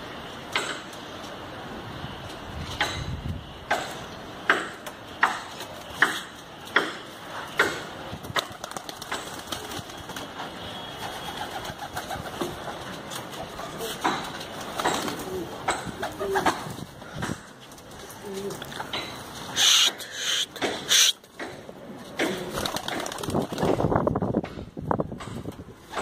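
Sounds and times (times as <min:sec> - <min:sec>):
wings flapping: 0:08.2 - 0:13.5, 0:22.3 - 0:24.1
pigeon calling: 0:19.5 - 0:21.2.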